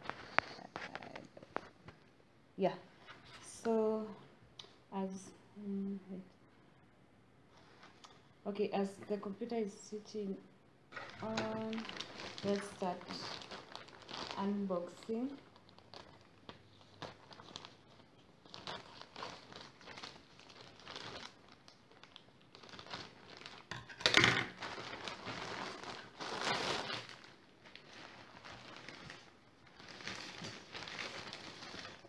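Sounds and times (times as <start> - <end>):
plastic bag rustling and crinkling: 0.0 - 1.9, 10.9 - 32.0.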